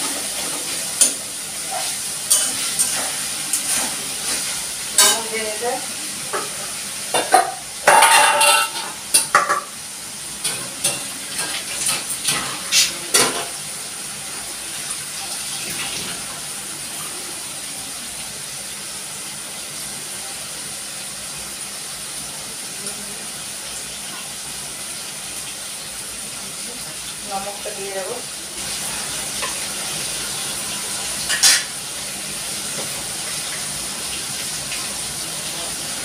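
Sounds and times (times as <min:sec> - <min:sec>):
dishes and utensils clattering: 0:00.0 - 0:05.3, 0:06.3 - 0:09.8, 0:10.4 - 0:13.6, 0:31.2 - 0:31.8
chicken sizzling in a wok: 0:00.0 - 0:36.0.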